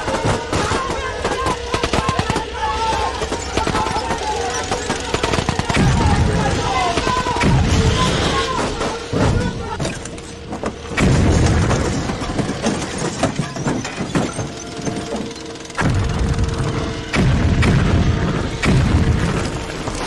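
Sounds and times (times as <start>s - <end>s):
crashing debris: 0.0s - 16.0s
explosion booms: 17.1s - 19.5s.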